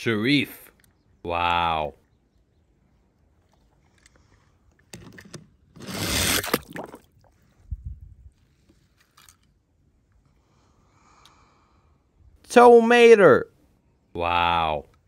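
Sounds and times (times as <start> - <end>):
splash and rushing water: 6.4 - 7.3.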